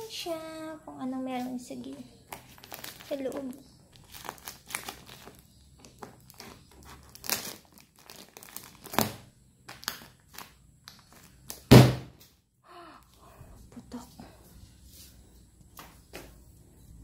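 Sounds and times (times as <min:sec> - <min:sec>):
plastic crinkling and crackling: 0:02.3 - 0:11.7
scissors cutting plastic wrap: 0:02.6 - 0:11.6
plastic strapping snapping: 0:04.0 - 0:12.0.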